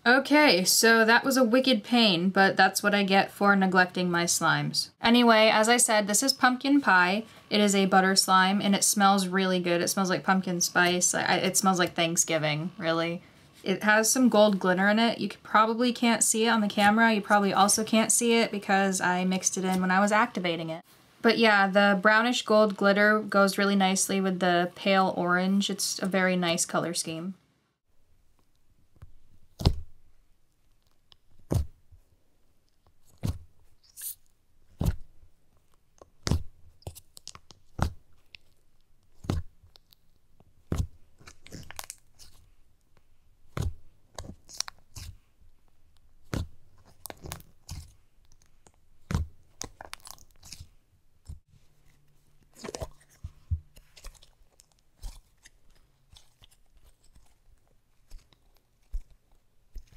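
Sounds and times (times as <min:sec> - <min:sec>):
slime squishing pops: 0:36.2 - 0:36.5.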